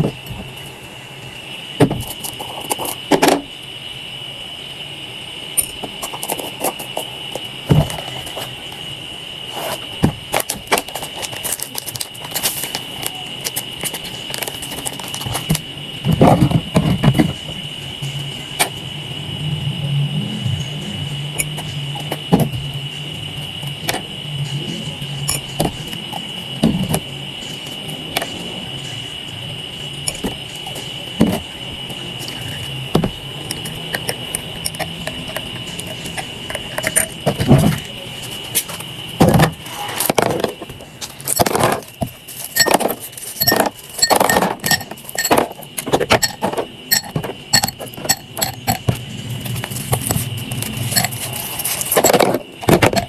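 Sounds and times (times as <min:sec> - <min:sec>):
high-pitched whine: 0:00.0 - 0:53.0
ice clinking against glass: 0:42.6 - 0:45.5, 0:46.2 - 0:48.8
teaspoon ticking against glass mug: 0:43.4 - 0:45.4, 0:46.2 - 0:48.8.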